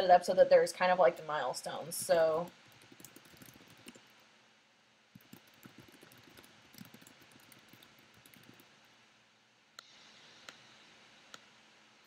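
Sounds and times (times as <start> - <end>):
typing on computer keyboard: 2.0 - 4.1, 5.2 - 8.7.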